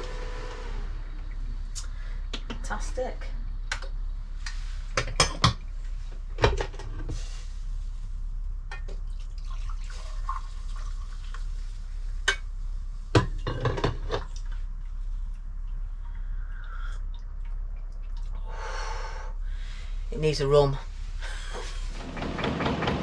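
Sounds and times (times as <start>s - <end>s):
coffee pouring into mug: 9.1s - 11.5s.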